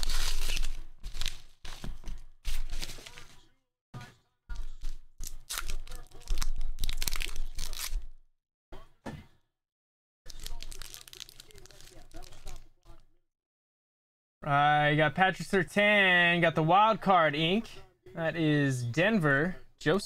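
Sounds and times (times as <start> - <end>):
paper and plastic rustling: 0.0 - 3.5, 10.3 - 12.6.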